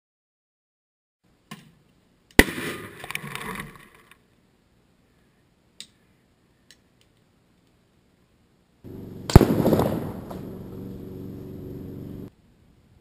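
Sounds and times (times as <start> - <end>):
plastic bottle bursting bang: 9.3 - 10.5.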